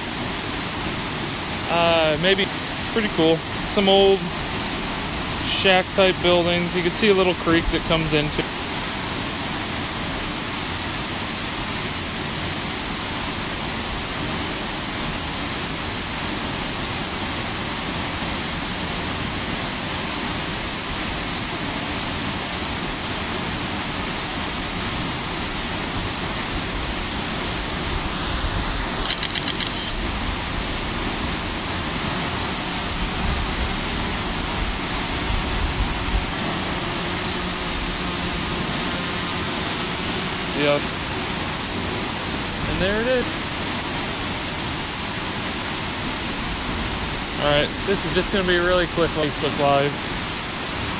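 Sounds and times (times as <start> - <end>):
waterfall rushing: 0.0 - 50.9.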